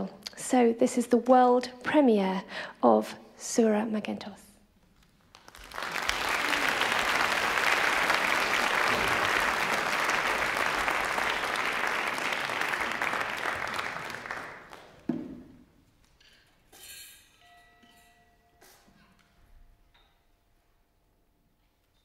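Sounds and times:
audience applauding: 5.3 - 15.1.

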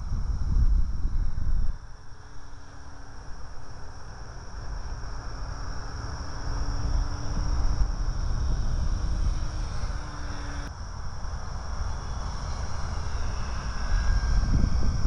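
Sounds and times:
wind buffeting microphone: 0.0 - 2.0, 5.7 - 15.0
model plane motor humming: 0.0 - 15.0.

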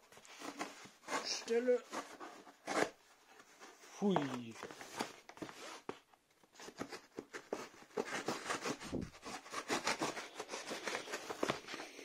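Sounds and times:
cardboard crinkling: 0.0 - 12.0
scissors cutting cardboard: 0.4 - 3.0, 6.6 - 12.0.

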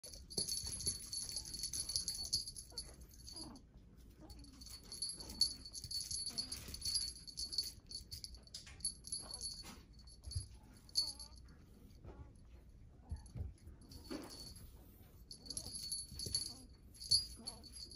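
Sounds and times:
small bell jingling: 0.0 - 3.6, 4.2 - 11.8, 13.0 - 17.9.

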